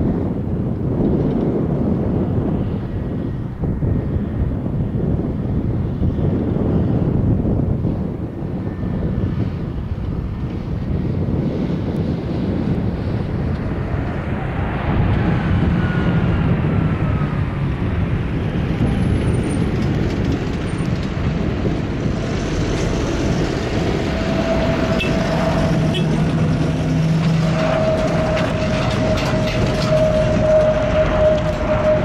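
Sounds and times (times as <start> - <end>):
jet engine rumble: 0.0 - 32.0
steady whining tone: 8.5 - 32.0.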